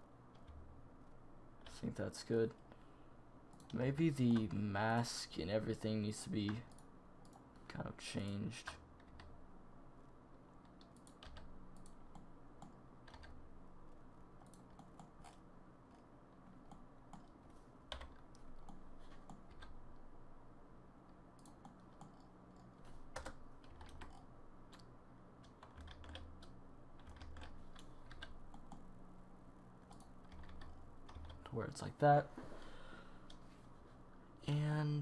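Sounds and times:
low steady hum: 0:00.0 - 0:35.0
computer keyboard clicking: 0:08.2 - 0:09.3, 0:10.7 - 0:13.4, 0:17.9 - 0:19.7, 0:21.4 - 0:28.8, 0:29.9 - 0:31.5.

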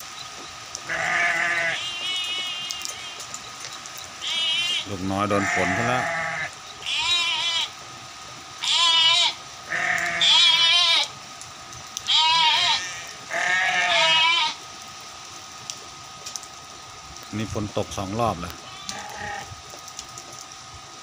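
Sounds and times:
sheep bleating: 0:00.9 - 0:03.3, 0:04.2 - 0:07.8, 0:08.6 - 0:11.1, 0:12.1 - 0:14.6, 0:18.7 - 0:19.5.

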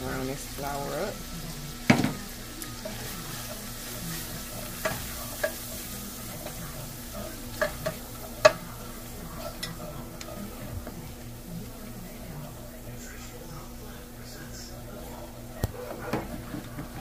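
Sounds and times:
low sizzle of oil: 0:00.0 - 0:17.0
wooden spoon scraping in pan: 0:00.1 - 0:12.6.

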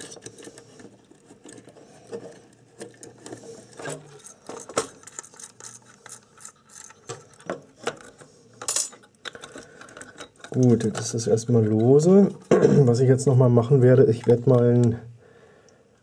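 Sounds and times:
small metallic clicks and rattles: 0:00.0 - 0:13.0.

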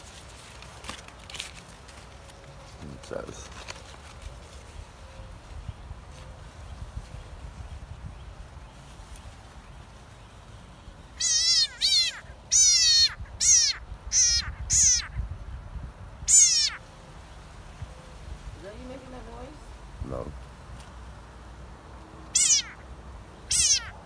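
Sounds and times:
frog screaming distress calls: 0:11.2 - 0:15.2, 0:16.3 - 0:16.9, 0:22.3 - 0:24.0.

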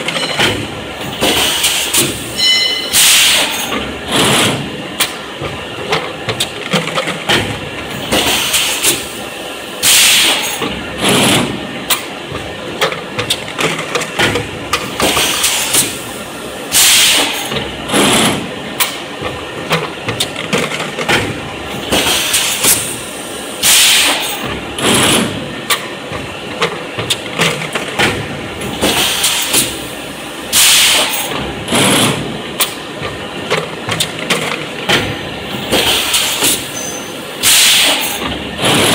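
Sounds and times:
machine clatter and clicking: 0:00.0 - 0:02.2, 0:02.9 - 0:09.1, 0:09.8 - 0:16.0, 0:16.7 - 0:23.0, 0:23.6 - 0:29.8, 0:30.5 - 0:38.9
compressed air hissing blasts: 0:16.7 - 0:17.3, 0:37.4 - 0:38.0.

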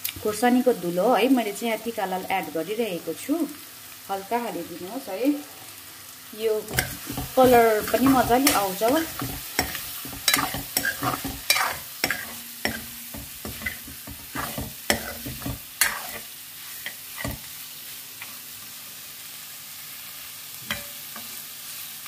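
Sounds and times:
meat sizzling: 0:00.0 - 0:22.0
metal spoon scraping a metal pan: 0:06.7 - 0:17.5, 0:20.7 - 0:21.3.

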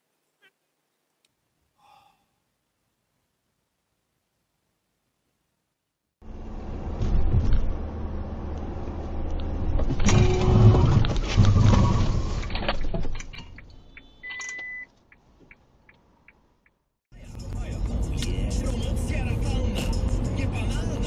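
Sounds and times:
car engine and road noise: 0:06.2 - 0:21.0.

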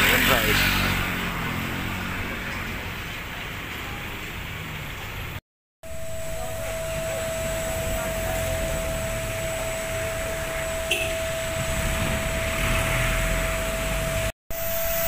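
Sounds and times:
motor humming with high whine: 0:05.9 - 0:15.0.

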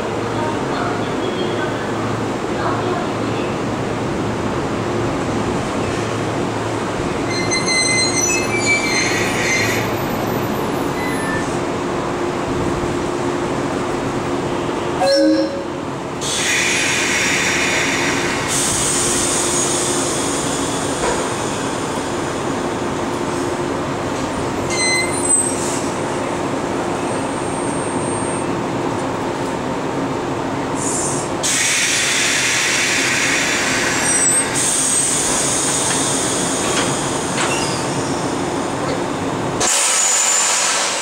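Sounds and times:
electric trains humming: 0:00.0 - 0:41.0
train couplers clunking: 0:35.2 - 0:41.0.

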